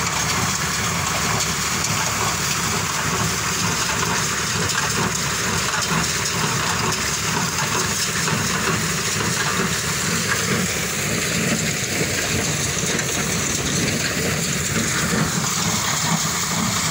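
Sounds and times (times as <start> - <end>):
baler engine and machinery: 0.0 - 16.9
rushing rain-like hiss: 0.0 - 16.9.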